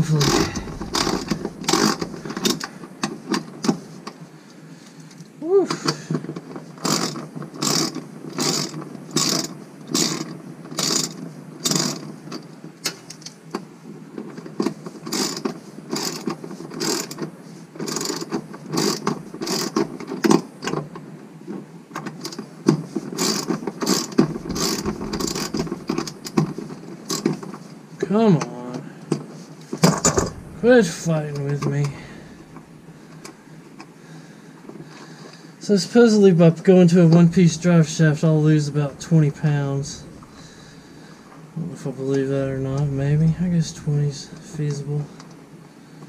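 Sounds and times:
socket ratchet clicking: 0:23.2 - 0:26.3.

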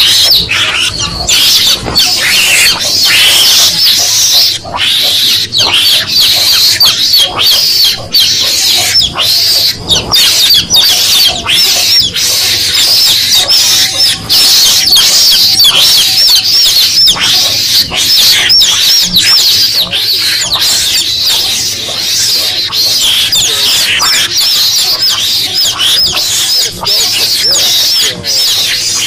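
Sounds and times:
chicks peeping: 0:00.0 - 0:29.0.

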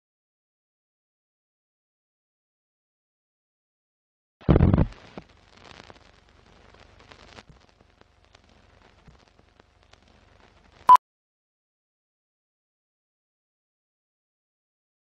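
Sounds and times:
old film crackle: 0:04.6 - 0:10.9.

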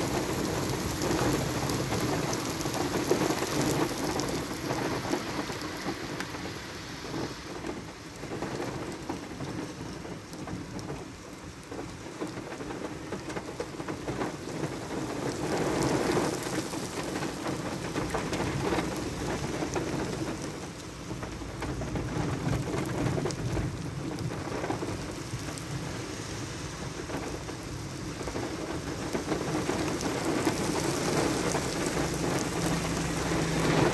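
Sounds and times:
heavy rain on pavement: 0:00.0 - 0:33.9
low thunder rumbling: 0:26.9 - 0:33.9.

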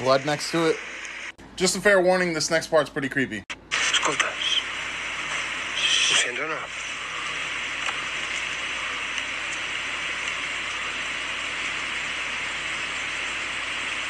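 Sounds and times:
steady hiss: 0:00.0 - 0:01.4, 0:03.7 - 0:14.0.

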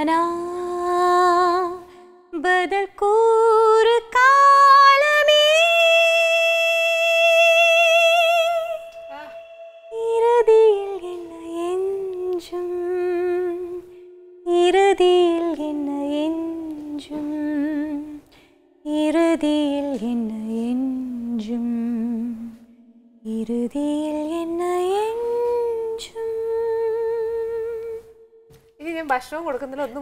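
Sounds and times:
woman humming melody: 0:07.0 - 0:13.8.

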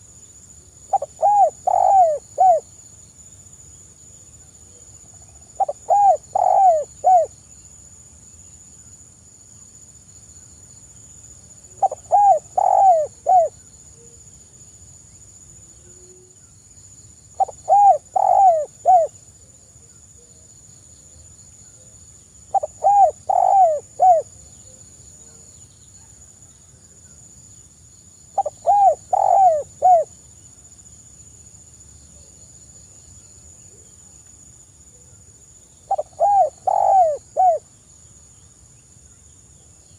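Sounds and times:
dove cooing softly: 0:00.9 - 0:02.7, 0:04.4 - 0:07.4, 0:11.7 - 0:14.2, 0:15.8 - 0:16.5, 0:17.4 - 0:20.4, 0:21.7 - 0:26.2, 0:28.4 - 0:30.2, 0:35.9 - 0:37.7.

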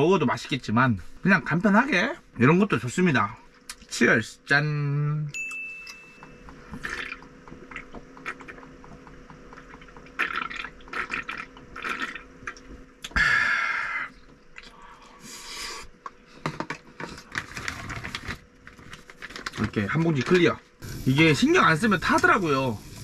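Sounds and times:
person gulping beer: 0:06.7 - 0:15.0.

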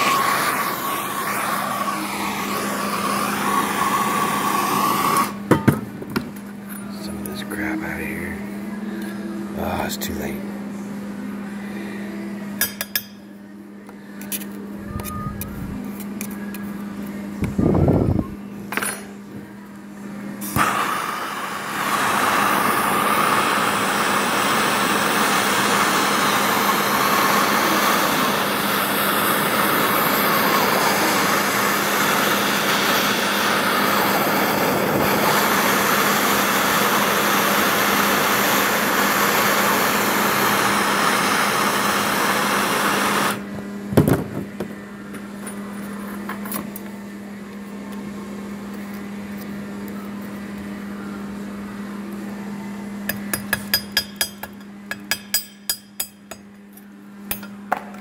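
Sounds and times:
gas torch hissing: 0:00.0 - 0:05.7, 0:20.4 - 0:43.5.

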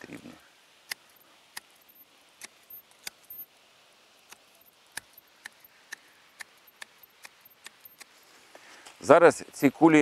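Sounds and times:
hand shears snipping foliage: 0:00.8 - 0:03.4, 0:04.2 - 0:09.0.

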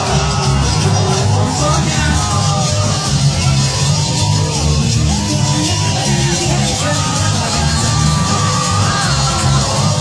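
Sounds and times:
crowd shouting: 0:00.0 - 0:10.0
loud music with heavy bass beat: 0:00.0 - 0:10.0.

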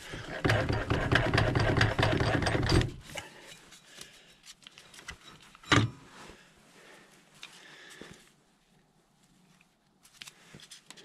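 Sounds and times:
metal parts rattling and scraping: 0:00.0 - 0:03.9.

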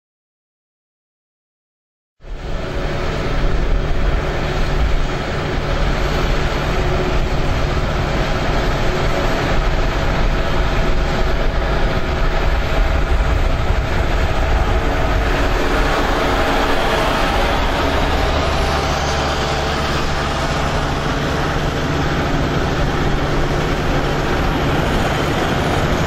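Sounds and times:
combine harvester engines driving past: 0:02.2 - 0:26.0.

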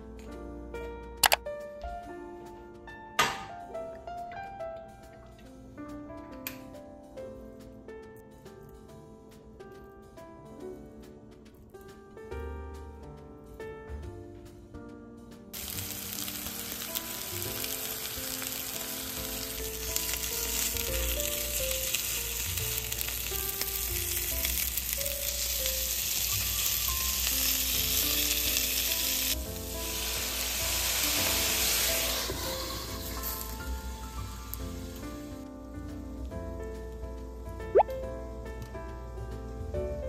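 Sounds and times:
water hissing in hot pan: 0:15.6 - 0:35.4
meatballs sizzling in oil: 0:15.6 - 0:36.0.

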